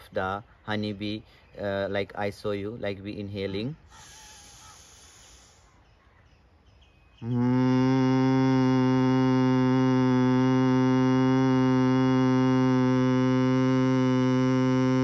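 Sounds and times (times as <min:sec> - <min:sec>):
man humming low buzz: 0:07.2 - 0:15.0.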